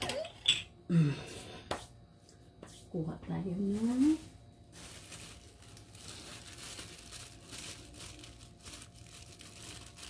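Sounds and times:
plastic gloves crinkling: 0:02.9 - 0:10.0.

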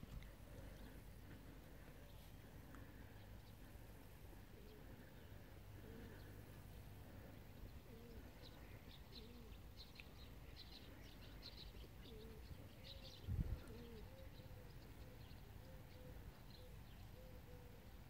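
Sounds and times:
small birds chirping: 0:00.0 - 0:18.0
dove cooing: 0:02.8 - 0:09.8, 0:10.4 - 0:18.0.

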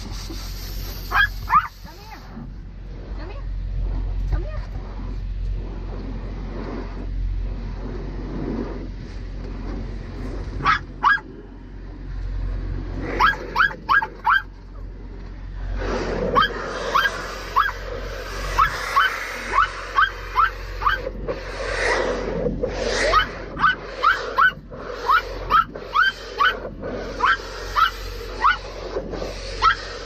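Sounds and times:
steady low rumble: 0:00.0 - 0:30.0
dog barking in high yips: 0:01.1 - 0:01.8, 0:10.6 - 0:11.3, 0:13.2 - 0:14.5, 0:16.3 - 0:17.8, 0:18.6 - 0:21.1, 0:23.1 - 0:26.6, 0:27.2 - 0:28.7, 0:29.6 - 0:29.8.

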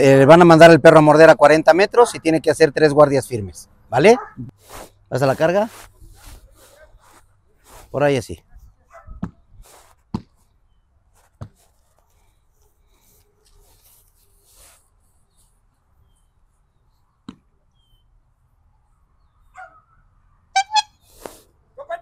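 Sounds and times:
dog barking: 0:04.1 - 0:04.5, 0:08.9 - 0:09.2, 0:19.6 - 0:19.8.

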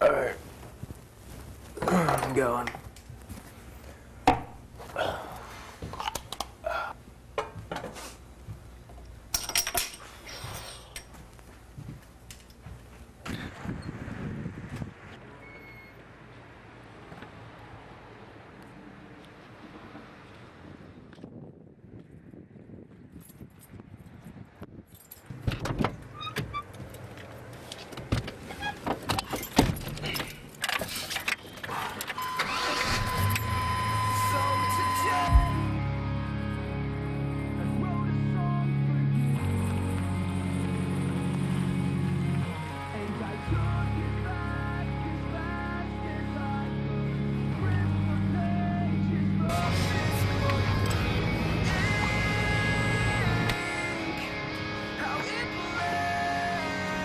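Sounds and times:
car keys jangling: 0:24.8 - 0:25.4, 0:29.1 - 0:33.5
steady high tone: 0:32.2 - 0:37.4.

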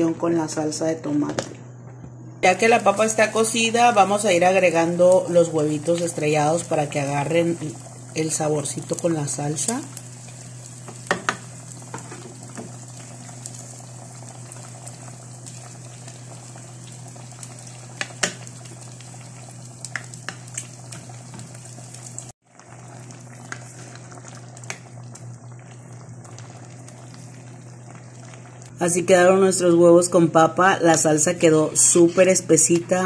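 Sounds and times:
sauce bubbling in pot: 0:04.2 - 0:28.7.

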